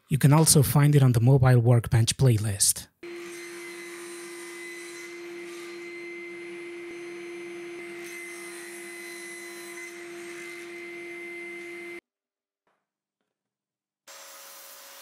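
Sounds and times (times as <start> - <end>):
table saw motor humming: 3.0 - 12.0.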